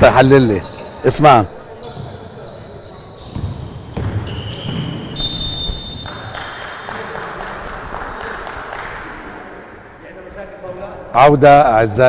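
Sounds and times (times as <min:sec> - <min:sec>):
murmur of the hall: 0:00.0 - 0:12.0
high-pitched shoe squeals: 0:00.5 - 0:06.2
basketball bouncing on gym floor: 0:03.2 - 0:06.3.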